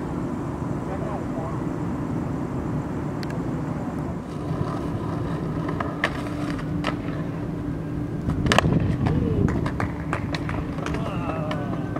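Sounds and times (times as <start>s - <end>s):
skateboard wheels rolling on pavement: 0.0s - 11.9s
skateboard clacks: 4.2s - 7.5s, 8.2s - 11.9s.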